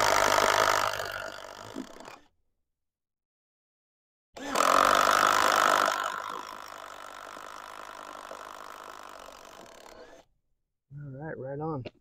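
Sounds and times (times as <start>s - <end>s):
cordless drill whining: 0.0s - 2.2s, 4.4s - 10.3s.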